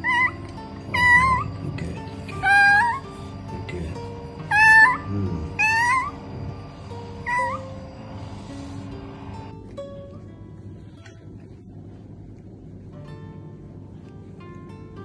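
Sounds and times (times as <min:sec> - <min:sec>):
kitten meowing in distress: 0:00.0 - 0:01.6, 0:02.4 - 0:03.1, 0:04.4 - 0:06.2, 0:07.2 - 0:07.7.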